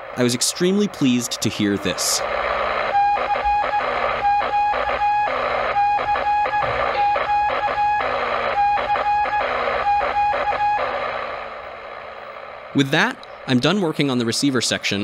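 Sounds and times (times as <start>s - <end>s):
crackly static hiss: 0.0s - 15.0s
morse code beeping tone: 2.9s - 11.0s.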